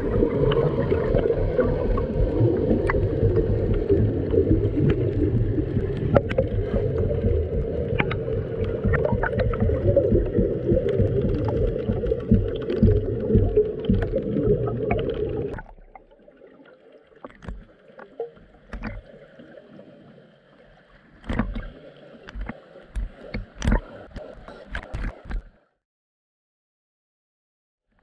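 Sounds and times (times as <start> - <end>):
water slapping against camera: 0.0 - 16.1, 17.2 - 19.1, 21.2 - 25.6
water sloshing: 0.0 - 19.5
underwater bubbling rumble: 0.0 - 25.4.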